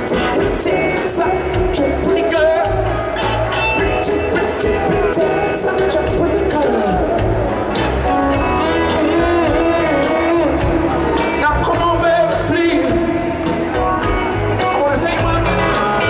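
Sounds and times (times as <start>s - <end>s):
live rock band playing: 0.0s - 16.0s
man singing lead vocals: 0.0s - 16.0s
steady drums: 0.0s - 16.0s.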